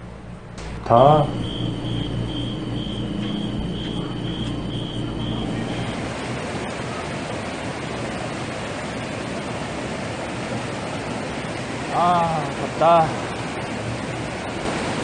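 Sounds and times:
steady low hum: 0.0s - 8.6s
faint high pulsing chirp: 0.6s - 6.0s
mountain stream rushing over boulders: 5.9s - 15.0s.

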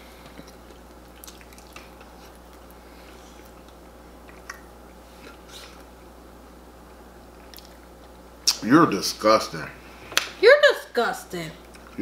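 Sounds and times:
low steady hum: 0.0s - 12.0s
wet chewing and smacking: 0.2s - 6.1s, 7.3s - 8.2s.

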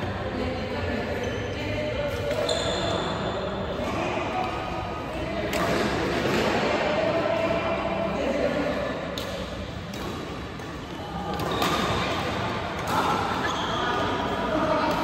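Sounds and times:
rackets hitting shuttlecock: 5.4s - 7.6s, 8.9s - 15.0s.

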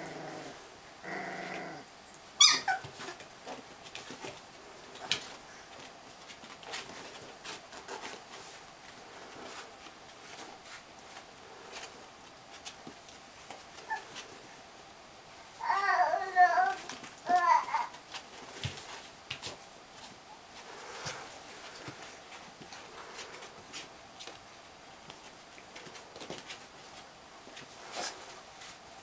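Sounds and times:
puppy growls and whines: 0.0s - 3.2s, 13.8s - 14.3s, 15.6s - 18.0s
puppies scuffling: 1.4s - 14.6s, 15.4s - 29.0s
high puppy yelp: 2.4s - 3.2s.

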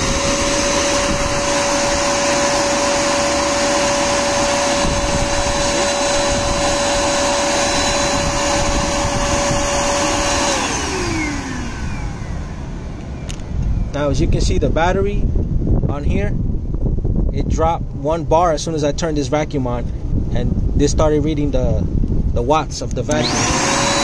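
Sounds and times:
vacuum cleaner motor whine: 0.0s - 13.4s, 23.1s - 24.0s.

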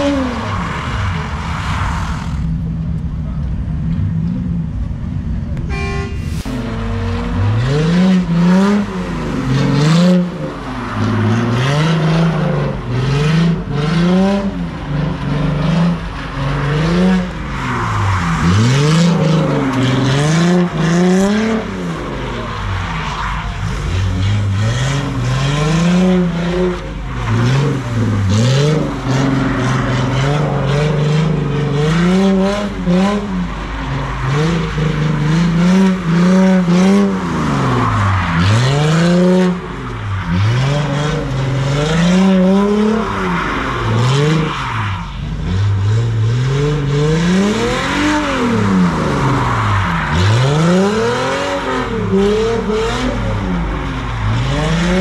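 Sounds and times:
car engine revving hard: 5.7s - 22.6s, 23.4s - 44.5s, 45.4s - 55.0s.

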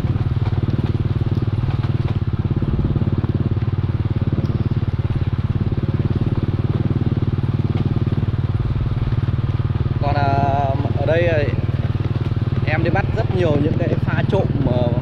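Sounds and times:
small motorcycle engine running: 0.0s - 15.0s.

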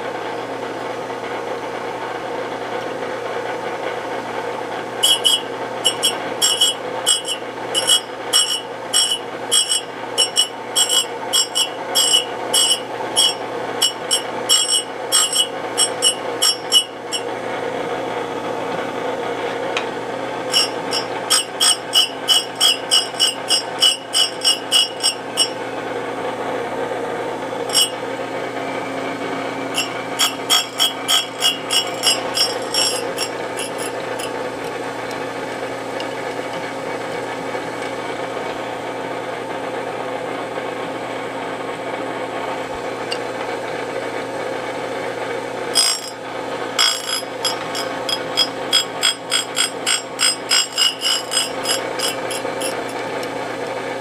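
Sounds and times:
surface grinder running: 4.9s - 38.8s, 45.1s - 54.0s.

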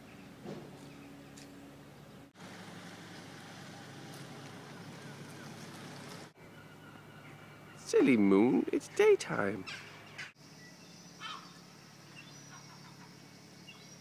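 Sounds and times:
steady low hum: 6.2s - 14.0s.

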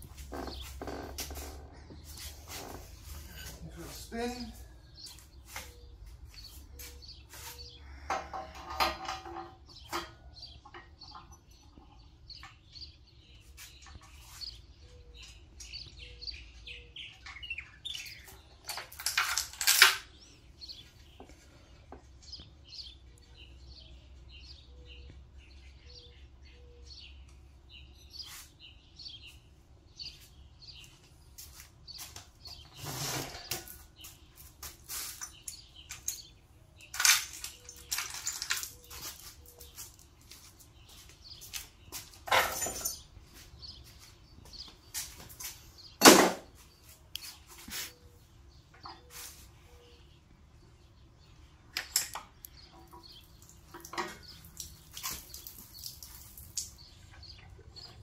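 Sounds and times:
small birds chirping: 0.0s - 58.0s
clinks and knocks of tools: 8.0s - 11.8s, 17.1s - 20.1s, 35.1s - 40.6s, 41.9s - 43.1s, 51.7s - 53.0s.

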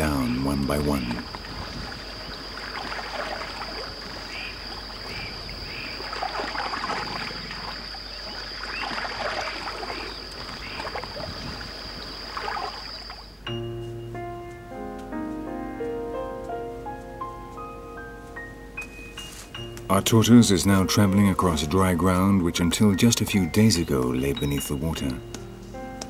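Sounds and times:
caimans splashing in shallow water: 0.0s - 13.4s.

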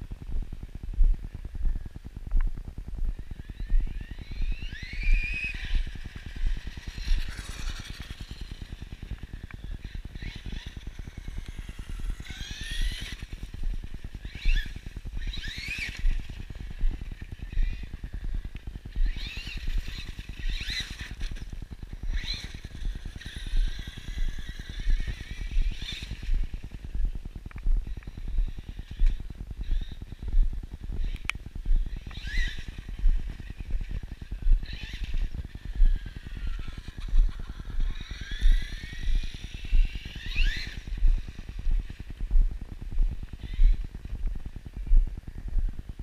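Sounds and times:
low rumble: 0.0s - 20.6s, 21.2s - 46.0s
rc truck electric motor whining: 3.2s - 42.2s, 43.2s - 44.2s
regular thumps: 13.1s - 46.0s.

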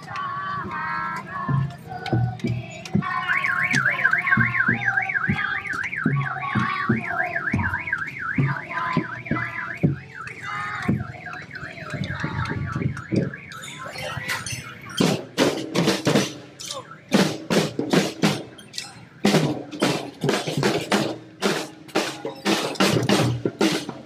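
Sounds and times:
children's marching drums: 0.0s - 24.0s
car alarm siren warbling: 3.0s - 15.3s, 16.6s - 19.8s.

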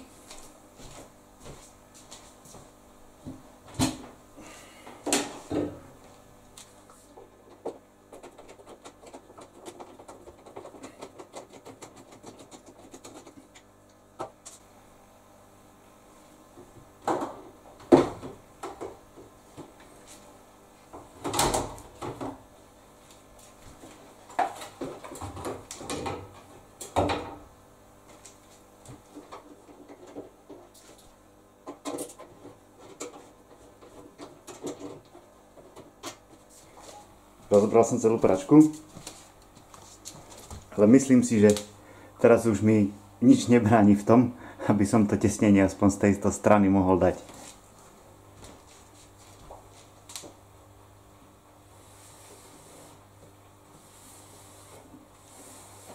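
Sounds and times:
machine parts knocking and rattling: 7.5s - 13.6s.

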